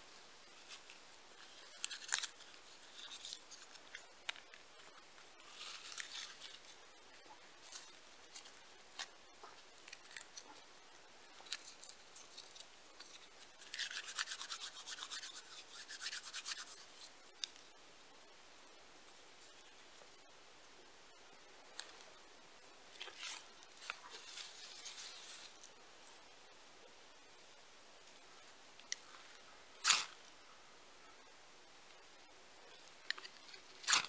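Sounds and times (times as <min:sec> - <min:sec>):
rapid scraping strokes: 0:13.6 - 0:17.1.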